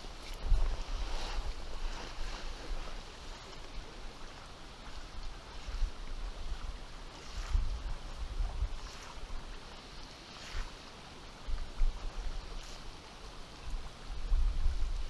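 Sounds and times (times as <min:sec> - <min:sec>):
river water running: 0:00.0 - 0:15.0.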